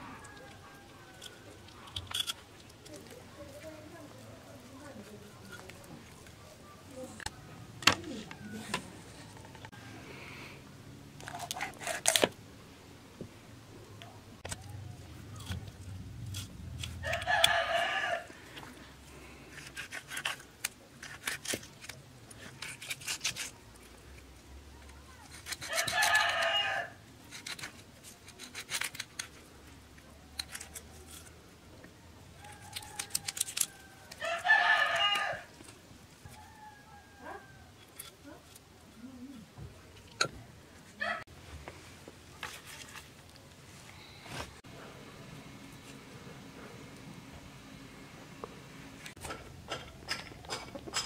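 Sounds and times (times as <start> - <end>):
rooster crowing: 17.0 - 18.4, 25.7 - 27.0, 32.4 - 35.6, 36.3 - 37.8.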